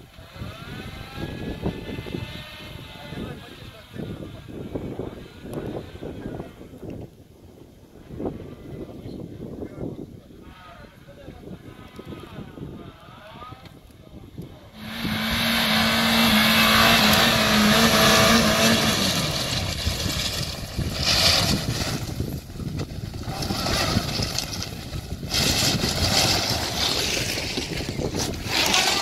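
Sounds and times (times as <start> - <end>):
car engine running: 14.8 - 20.9.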